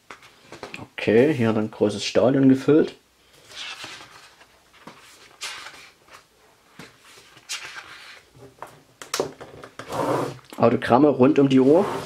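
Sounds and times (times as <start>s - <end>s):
book pages turning: 3.4s - 8.3s.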